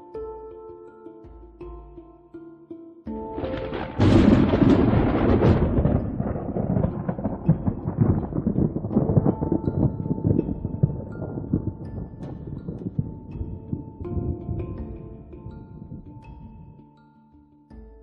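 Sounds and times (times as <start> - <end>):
soft background music: 0.0 - 18.0
thunder crack and rumble: 3.4 - 14.7.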